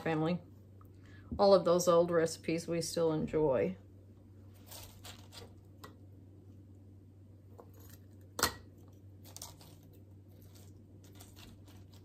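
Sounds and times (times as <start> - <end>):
cabbage rustling and handling: 4.5 - 5.8, 9.2 - 12.0.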